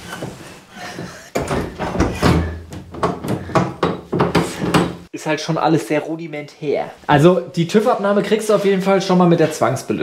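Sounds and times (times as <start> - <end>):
knocks and clatters: 1.0 - 5.1.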